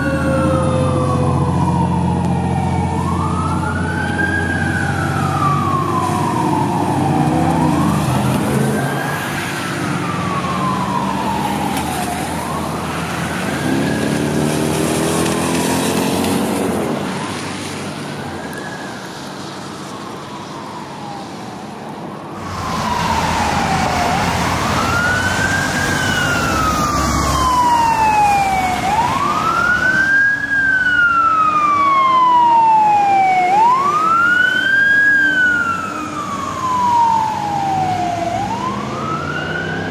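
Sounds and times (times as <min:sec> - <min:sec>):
fire truck siren wailing: 0:00.0 - 0:39.9
truck engine revving: 0:03.2 - 0:17.0.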